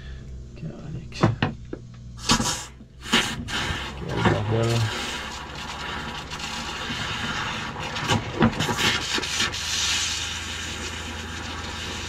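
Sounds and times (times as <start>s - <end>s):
water pump humming: 0.0s - 12.0s
water running into sink: 3.6s - 12.0s.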